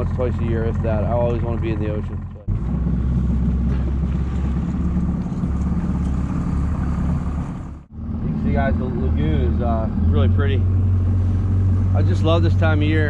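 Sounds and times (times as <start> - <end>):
boat motor running: 0.0 - 13.0.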